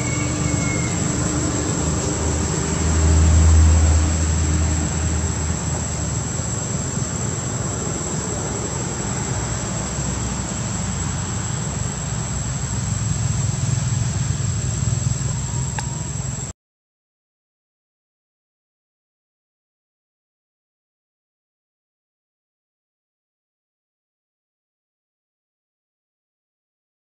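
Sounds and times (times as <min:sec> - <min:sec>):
constant hiss: 0:00.0 - 0:16.5
insects droning: 0:00.0 - 0:16.5
faint tick: 0:15.7 - 0:15.9.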